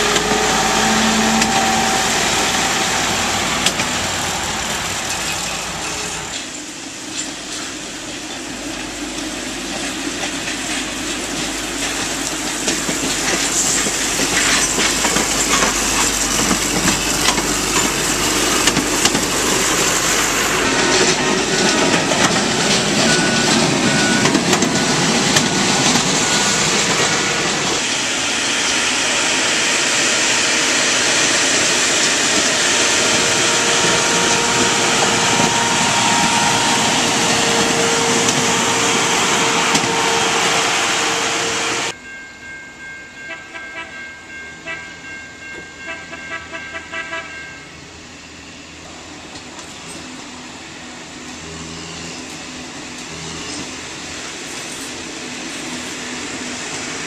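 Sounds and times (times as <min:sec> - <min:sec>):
rail machine engines running: 0:00.0 - 0:57.0
steel wheels on rail: 0:00.0 - 0:57.0.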